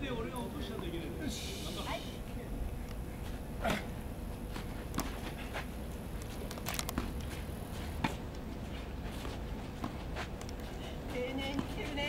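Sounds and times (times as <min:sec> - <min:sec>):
steady low rumble: 0:00.0 - 0:12.0
tennis balls hit and bouncing: 0:04.5 - 0:12.0.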